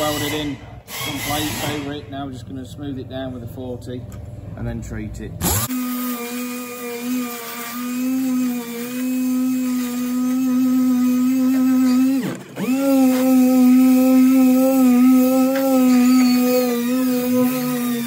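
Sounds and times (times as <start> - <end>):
air sander whining: 5.4 - 18.0.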